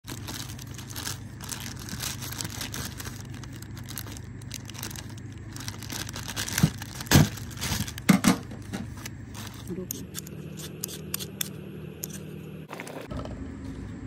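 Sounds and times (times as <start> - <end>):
plastic bag crinkling: 0.0 - 8.2, 8.9 - 9.7
steady low hum: 0.0 - 14.0.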